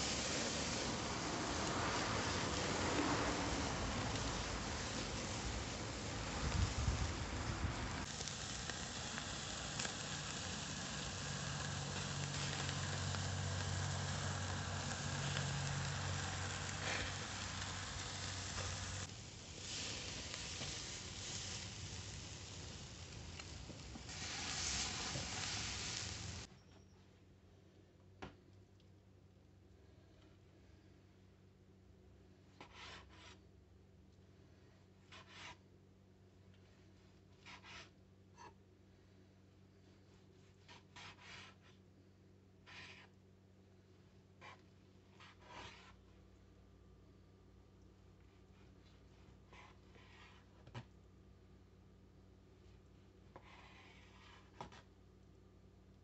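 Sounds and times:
steak sizzling on a grill: 0.0 - 26.5.

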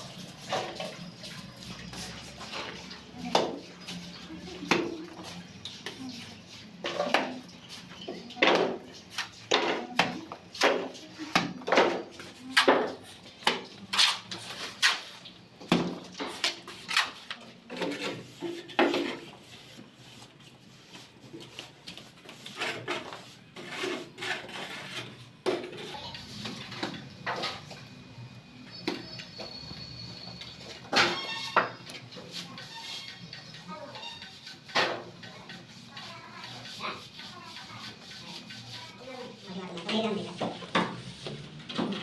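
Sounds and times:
trowel scraping in metal pan: 22.4 - 27.6.

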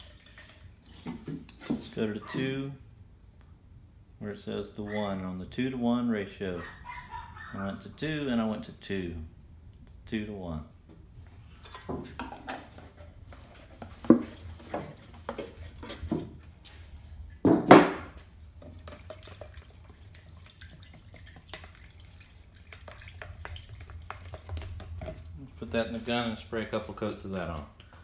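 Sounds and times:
stick tapping and scraping cup: 18.6 - 19.7, 22.6 - 25.4.

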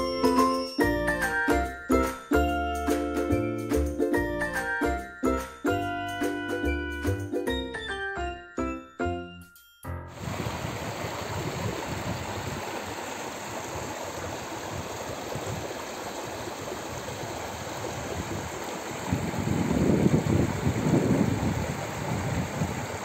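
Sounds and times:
creek rushing over rocks: 10.1 - 23.0.

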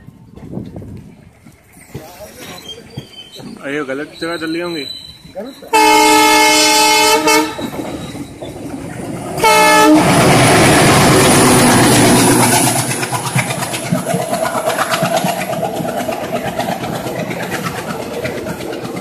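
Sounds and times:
locomotive engine and wheels: 0.0 - 19.0
train wheels clicking over joints: 0.0 - 19.0
locomotive horn blast: 5.7 - 7.8, 9.4 - 11.2.

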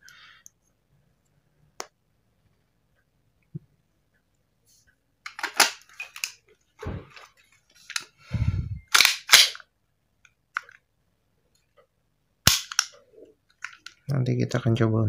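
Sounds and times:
metallic clicks of pistol handling: 5.3 - 6.4, 8.9 - 9.6, 10.2 - 10.8, 12.5 - 14.0.

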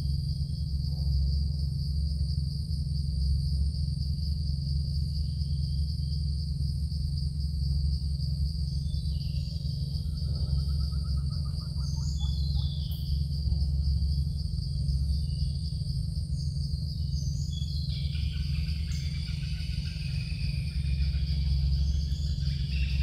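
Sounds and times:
insect chorus: 0.0 - 23.0
low hum: 0.0 - 23.0
rapid trilling bird call: 8.9 - 13.5, 17.0 - 23.0
bird chirps: 9.0 - 13.6.

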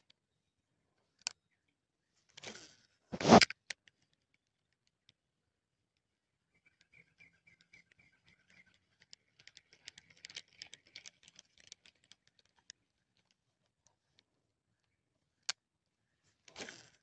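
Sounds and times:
handling clicks and rustling: 3.2 - 3.5.

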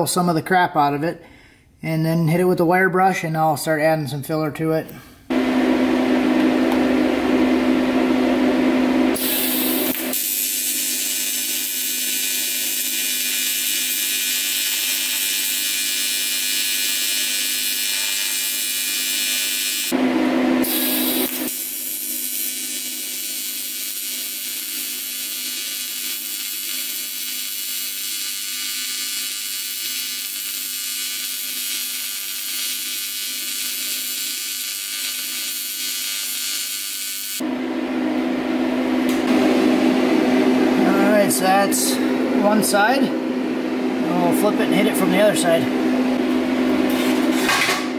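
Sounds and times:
loud steady hum: 5.3 - 26.1, 37.4 - 47.9
welding arc buzzing: 8.8 - 37.5.

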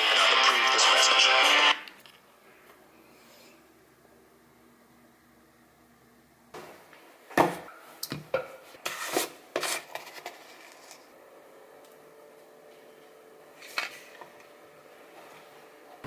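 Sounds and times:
faint steady hum: 0.0 - 8.8.

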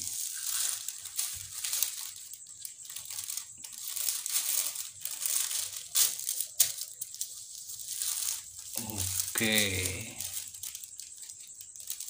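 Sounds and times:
plastic sheeting crinkling: 0.0 - 12.0.

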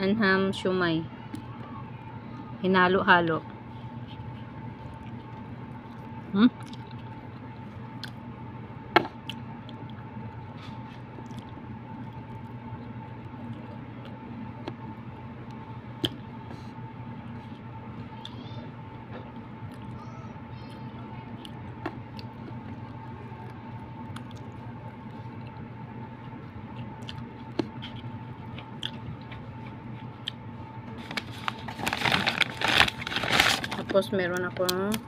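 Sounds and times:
steady hum: 0.0 - 35.0
chewing: 4.0 - 8.2, 9.2 - 14.2, 20.6 - 30.4.

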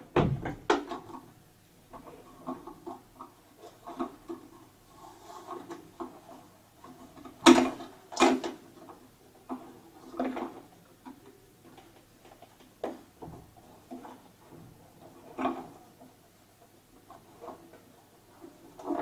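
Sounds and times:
plastic knocks: 0.0 - 1.2.

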